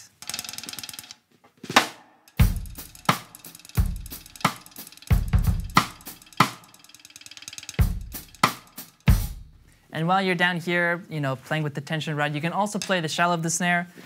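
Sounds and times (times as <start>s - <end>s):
snare drum beat: 1.7s - 6.8s, 7.6s - 9.5s.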